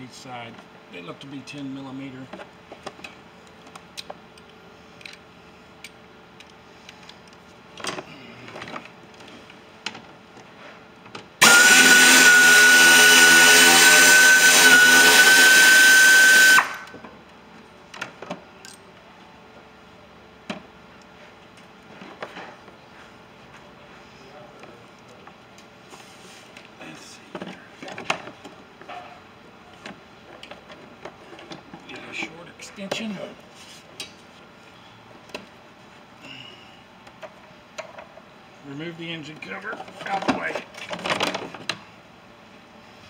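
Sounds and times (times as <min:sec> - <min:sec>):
power driver whining: 0:11.4 - 0:17.0.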